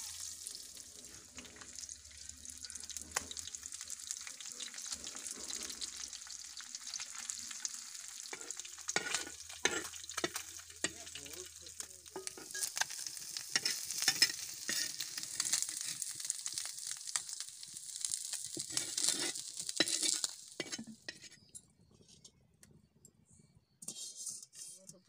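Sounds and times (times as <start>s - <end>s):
fish sizzling in oil: 0.0s - 21.4s
metal spatula scraping pan: 4.8s - 6.0s, 8.2s - 11.2s, 12.2s - 16.2s, 18.5s - 22.3s, 23.8s - 24.9s.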